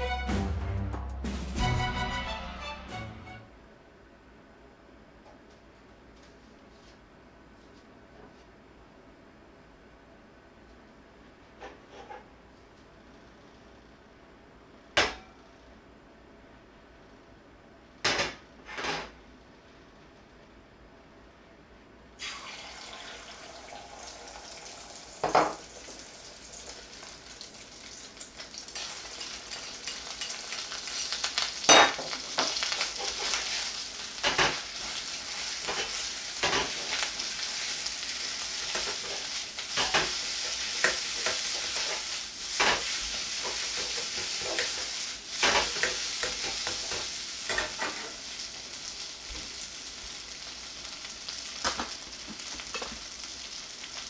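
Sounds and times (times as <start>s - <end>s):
egg sizzling in hot fat: 22.2s - 54.0s.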